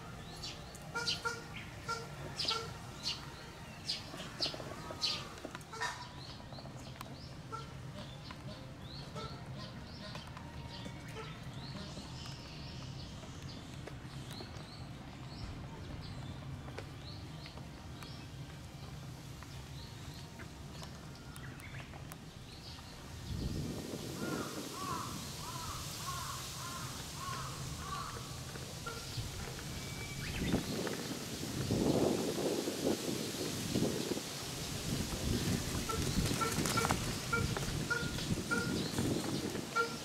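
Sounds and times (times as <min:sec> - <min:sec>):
geese bills pecking and crunching: 0:24.3 - 0:29.6.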